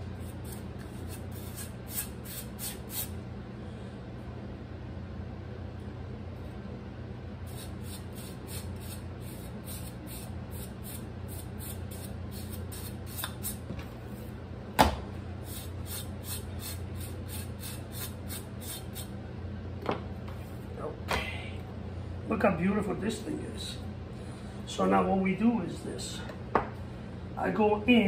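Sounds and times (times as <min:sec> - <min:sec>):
steady low hum: 0:00.0 - 0:28.0
knife scraping pork skin: 0:00.1 - 0:03.1, 0:07.5 - 0:13.6, 0:15.5 - 0:19.1.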